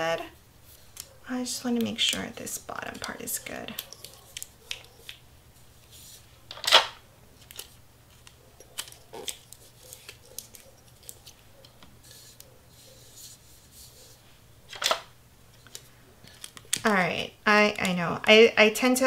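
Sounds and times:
paper and tape crinkling: 0:00.6 - 0:06.7, 0:07.3 - 0:14.9
tape tearing rasp: 0:08.7 - 0:11.4.

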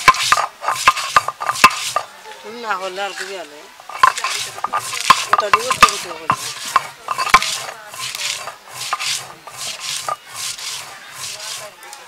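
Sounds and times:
stone knocking on stone: 0:00.0 - 0:02.1, 0:03.9 - 0:10.7
stone roller rasping on stone slab: 0:00.0 - 0:02.1, 0:03.9 - 0:11.8.

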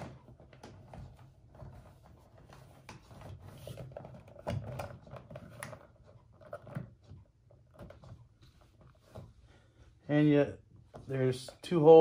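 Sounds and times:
cable clicking and knocking on plastic: 0:00.0 - 0:09.3.

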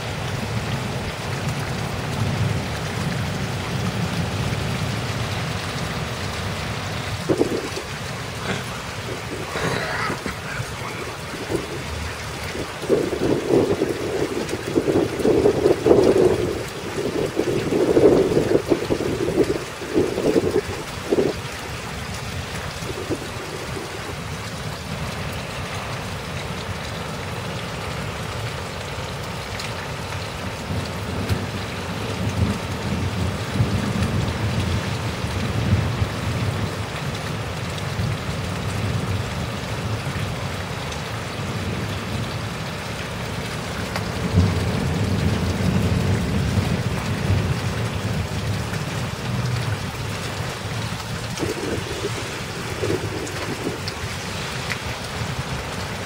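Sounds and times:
heavy rain pouring: 0:00.0 - 0:56.0
low gusty rumble: 0:01.8 - 0:21.4, 0:49.3 - 0:55.8.

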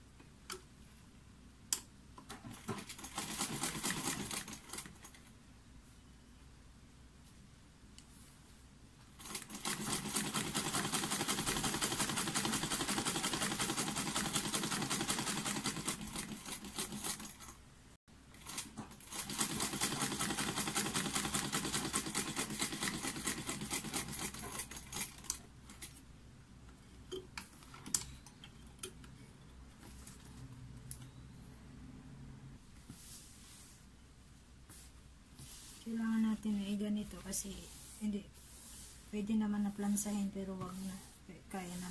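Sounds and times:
sewing machine ticking: 0:02.5 - 0:05.1, 0:09.2 - 0:17.4, 0:18.5 - 0:25.4.

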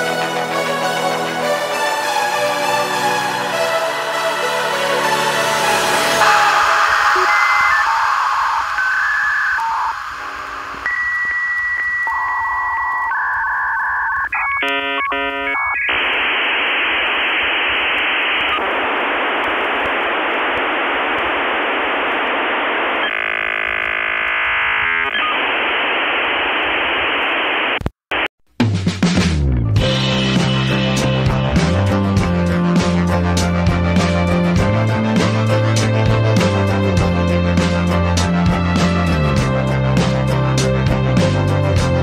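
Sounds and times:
music: 0:00.0 - 0:10.1, 0:28.6 - 0:42.0
dial-up modem tones: 0:06.2 - 0:27.8.

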